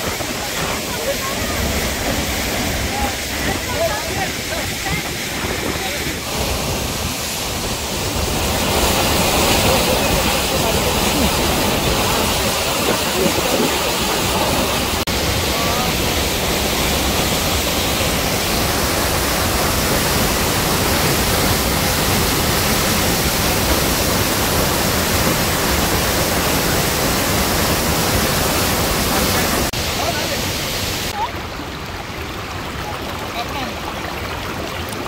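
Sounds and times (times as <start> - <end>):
waterfall rushing water: 0.0 - 35.0.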